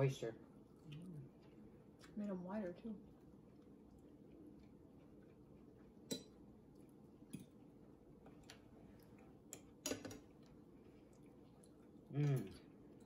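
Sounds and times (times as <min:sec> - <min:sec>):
cutlery clinking on plates: 0:09.5 - 0:10.3.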